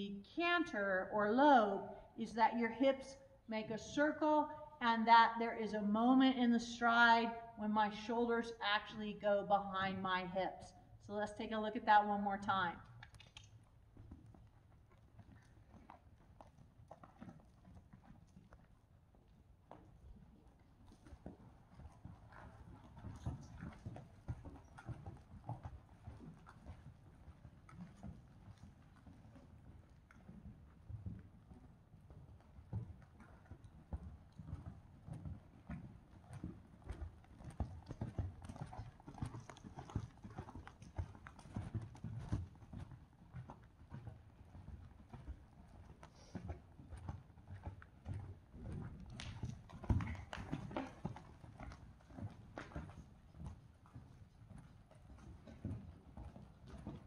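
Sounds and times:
horse hoofbeats on sand: 13.9 - 57.0.

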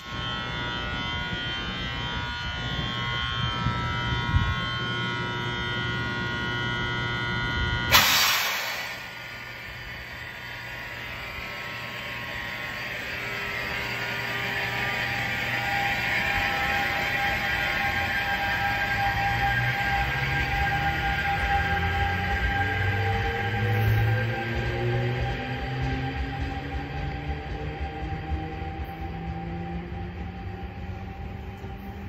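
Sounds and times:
locomotive humming and whining: 0.0 - 32.0
sudden loud hiss: 7.9 - 9.6.

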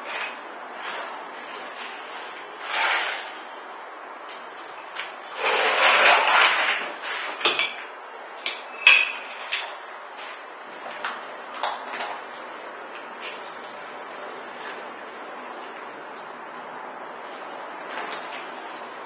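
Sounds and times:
parquet panel scraping on floor: 2.6 - 3.4.

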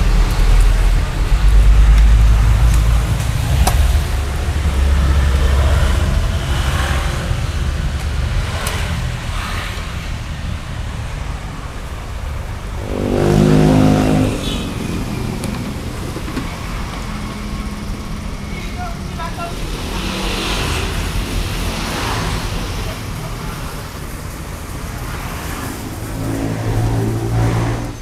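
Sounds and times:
rumble of passing vehicles: 0.0 - 28.0
louder engine passing by: 12.4 - 28.0.

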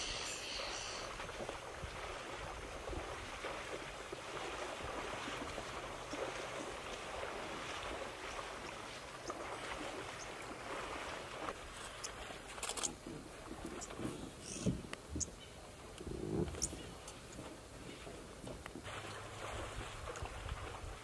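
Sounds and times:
water splashing: 0.0 - 21.0.

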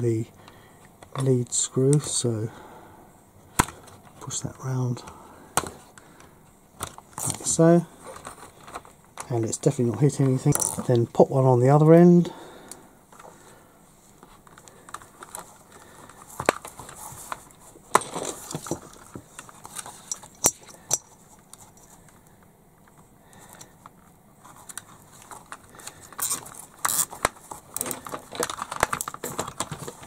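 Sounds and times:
light clicks and handling noise: 3.6 - 11.2, 14.1 - 30.0
cable tie ratcheting: 24.7 - 30.0.

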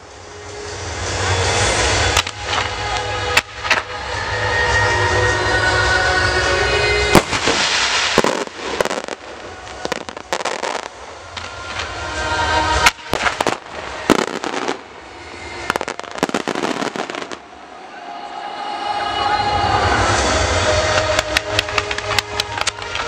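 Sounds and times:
firework crackle: 0.0 - 4.9, 7.0 - 17.7, 19.7 - 23.0
firework bangs: 7.1 - 17.6.

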